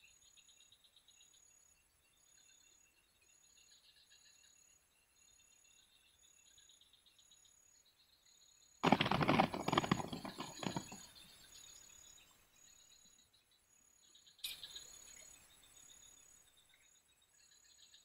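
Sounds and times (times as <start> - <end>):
loud crackling rustle: 8.8 - 11.0
insects chirping: 8.8 - 17.9.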